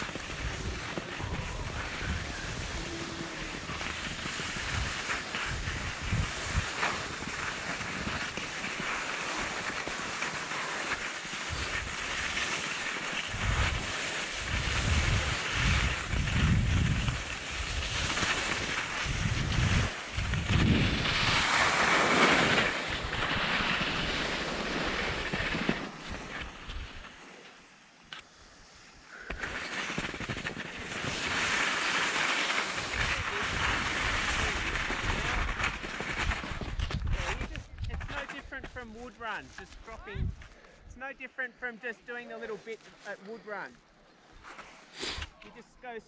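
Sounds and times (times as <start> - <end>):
wind buffeting microphone: 0.0 - 7.4, 13.3 - 21.6, 40.0 - 40.5
skis hissing over snow: 0.0 - 43.7, 44.3 - 46.0.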